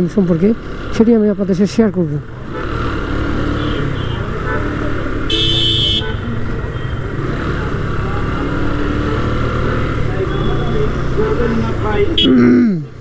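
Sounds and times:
road and wind noise: 0.0s - 13.0s
vehicle horn: 3.6s - 7.1s.

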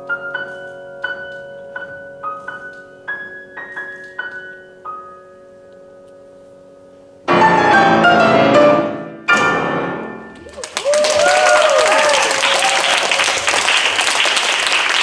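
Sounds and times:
loud piano chords: 0.0s - 10.5s
audience applause: 10.4s - 15.0s.

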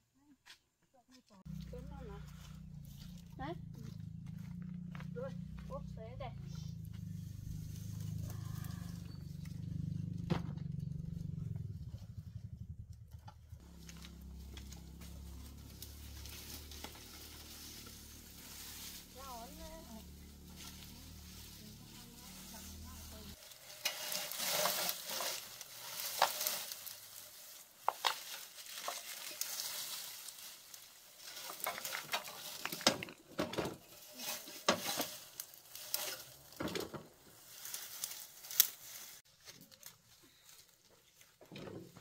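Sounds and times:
dry brush rustling and crackling: 1.4s - 11.8s, 13.6s - 42.0s
twigs snapping: 23.5s - 33.2s, 37.6s - 39.0s.

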